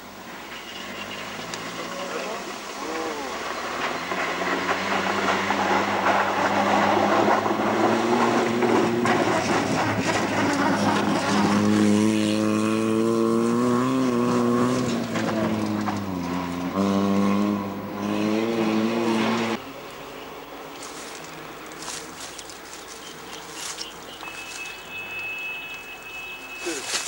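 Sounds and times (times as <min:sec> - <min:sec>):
rally car engines at high revs: 0:00.0 - 0:20.3.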